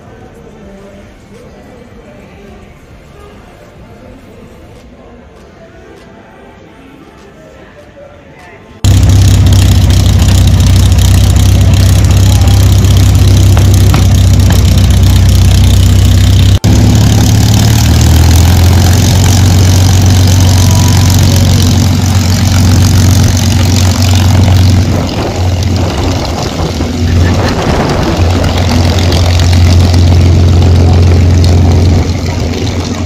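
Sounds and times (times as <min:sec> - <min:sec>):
aircraft piston engine idling: 0:08.8 - 0:33.0.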